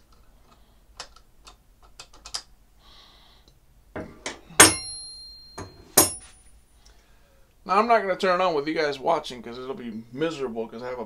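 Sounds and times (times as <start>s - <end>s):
metallic clanks: 4.0s - 6.4s.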